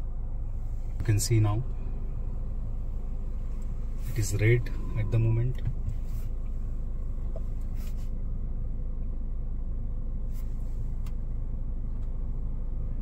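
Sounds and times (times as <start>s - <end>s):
car cabin low rumble: 0.0s - 13.0s.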